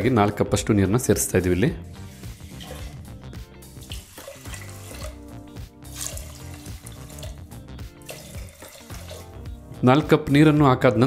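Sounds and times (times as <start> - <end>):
soft background music: 0.0 - 11.0
water pouring and splashing: 1.9 - 9.6.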